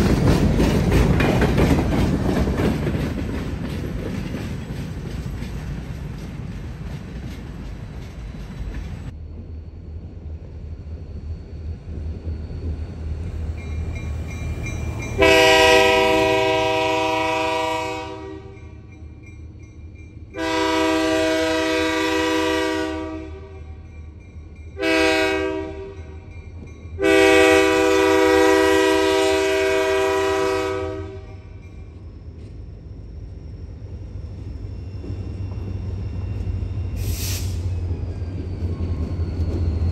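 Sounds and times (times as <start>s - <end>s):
freight cars rolling on rails: 0.0s - 17.4s, 31.1s - 39.9s
locomotive air horn: 15.2s - 18.7s, 20.4s - 23.8s, 24.8s - 26.2s, 27.0s - 31.6s.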